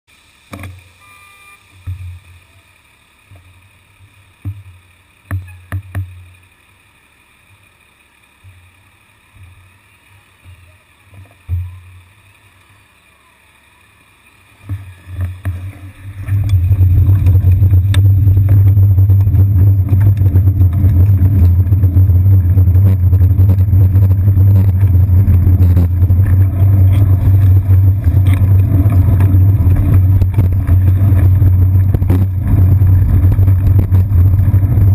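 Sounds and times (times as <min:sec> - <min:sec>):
wind and road rumble: 0:07.5 - 0:34.9
dull low thumps: 0:14.7 - 0:34.9.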